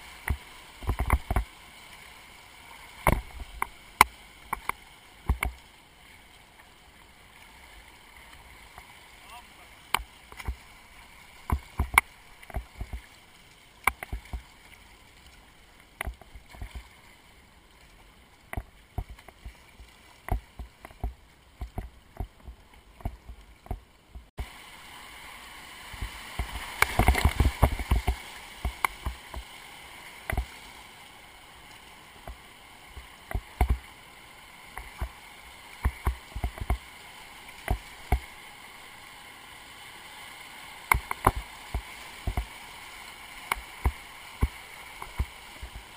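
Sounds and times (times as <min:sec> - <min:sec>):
sharp splashes and knocks: 0:00.2 - 0:01.5, 0:03.0 - 0:05.6, 0:11.4 - 0:13.1, 0:13.8 - 0:14.5, 0:18.5 - 0:24.5, 0:25.9 - 0:29.5, 0:30.2 - 0:30.6, 0:32.2 - 0:33.8, 0:35.8 - 0:36.8, 0:37.6 - 0:38.3, 0:40.8 - 0:42.5, 0:43.4 - 0:45.8.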